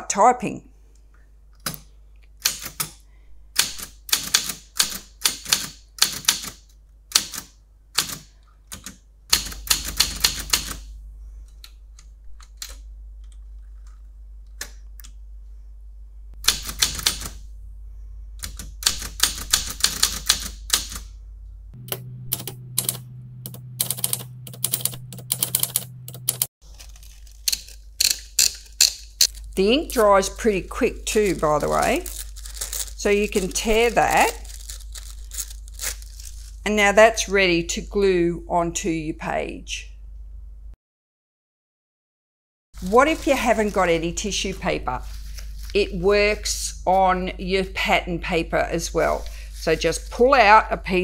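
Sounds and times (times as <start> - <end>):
typewriter keystrokes: 2.4 - 2.9, 3.5 - 10.9, 16.4 - 17.4, 18.4 - 21.1, 21.9 - 29.3
low steady hum: 6.7 - 40.8, 42.8 - 51.0.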